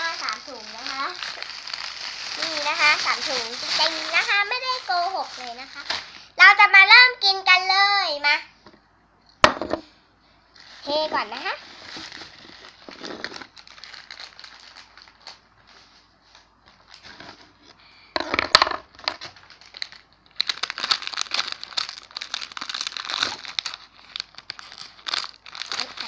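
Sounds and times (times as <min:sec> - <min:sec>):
plastic packet crinkling: 0:00.0 - 0:06.3, 0:10.6 - 0:17.4, 0:18.6 - 0:26.0.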